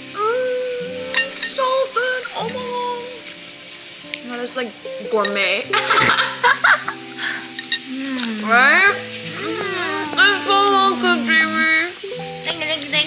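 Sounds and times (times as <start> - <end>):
music of held overlapping notes: 0.0 - 13.0
gliding vocal-like melody: 7.9 - 12.0.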